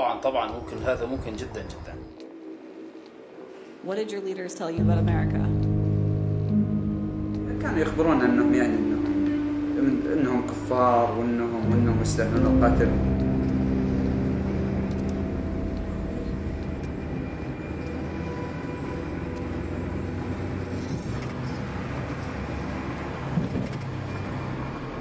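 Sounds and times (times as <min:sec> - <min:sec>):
car engine and tyre rumble: 0:13.0 - 0:25.0.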